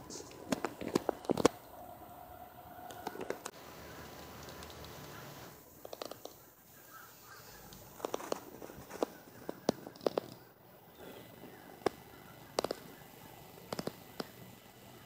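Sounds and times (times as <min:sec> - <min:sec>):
faint outdoor background: 0:00.0 - 0:15.0
sharp clicks and taps: 0:00.1 - 0:01.6, 0:02.9 - 0:06.4, 0:11.8 - 0:13.0, 0:13.7 - 0:14.4.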